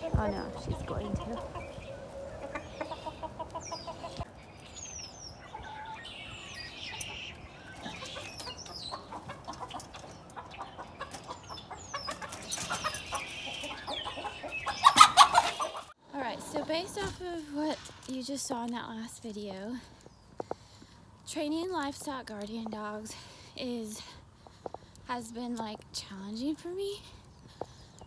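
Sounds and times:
hens clucking: 0.0s - 4.3s, 5.4s - 17.1s
small birds chirping: 0.0s - 16.0s, 18.1s - 28.0s.

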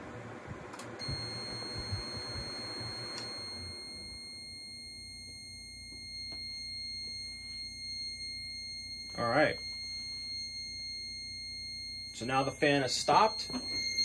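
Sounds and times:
desk fan whirring: 0.0s - 14.0s
alarm buzzer high-pitched tone: 1.0s - 14.0s.

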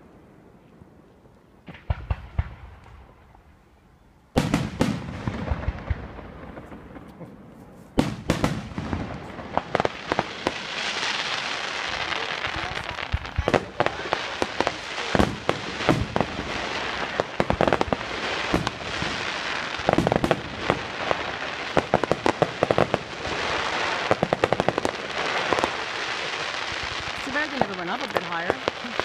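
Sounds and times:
steady background hiss: 0.0s - 29.0s
fireworks bangs and crackling: 1.2s - 3.4s, 4.3s - 29.0s.

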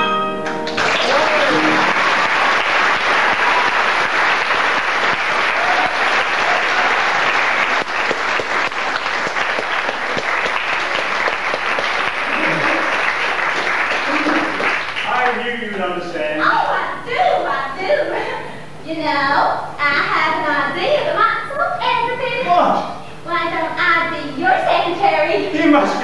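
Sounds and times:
audience applauding: 0.4s - 16.0s
faint voice: 12.3s - 12.9s.

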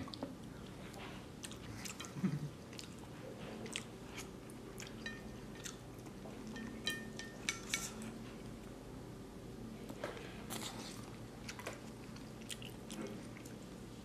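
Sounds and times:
person chewing noodles: 0.0s - 5.0s, 5.6s - 6.1s, 10.5s - 13.8s
chopsticks tapping a ceramic plate: 6.6s - 7.8s.

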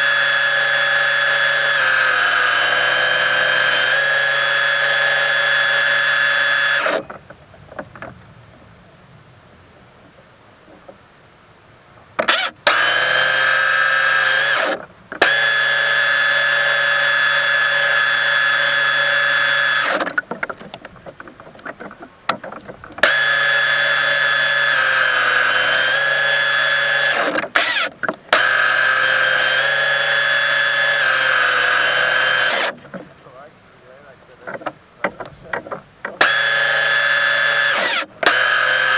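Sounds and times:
electric motor whining: 0.0s - 7.2s, 12.2s - 20.2s, 23.0s - 33.0s, 36.2s - 38.9s
water splashing: 19.9s - 24.6s.

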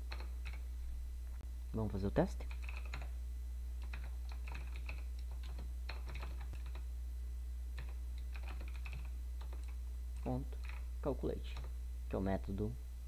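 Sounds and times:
computer keyboard typing: 0.0s - 0.6s, 2.4s - 3.2s, 3.8s - 6.9s, 7.8s - 10.9s, 11.5s - 11.8s
low electrical hum: 0.0s - 13.0s.

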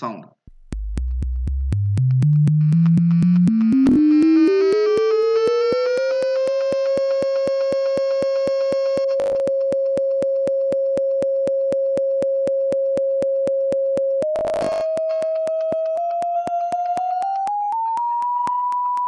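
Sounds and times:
regular clicks: 0.5s - 19.0s
sine-wave tone: 6.4s - 18.8s.

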